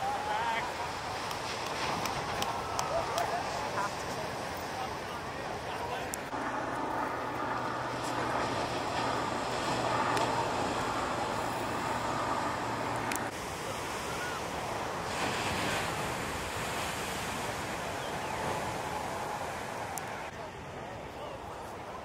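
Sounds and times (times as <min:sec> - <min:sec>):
waves breaking on beach: 0:00.0 - 0:22.0.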